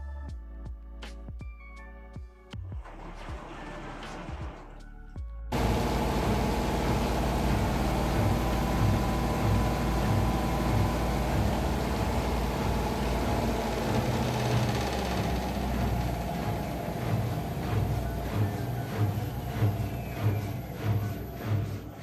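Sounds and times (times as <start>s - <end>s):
washing machine spinning: 5.5s - 22.0s.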